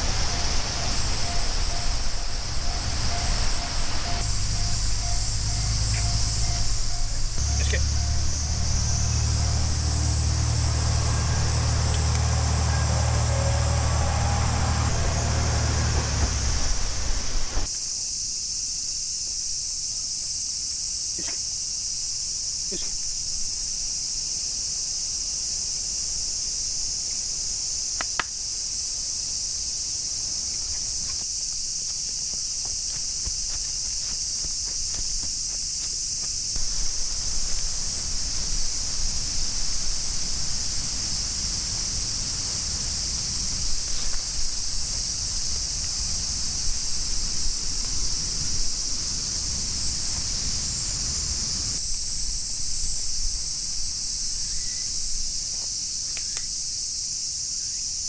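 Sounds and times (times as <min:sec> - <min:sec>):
low steady hum: 0:00.0 - 0:17.7
cicadas droning: 0:00.0 - 0:58.0.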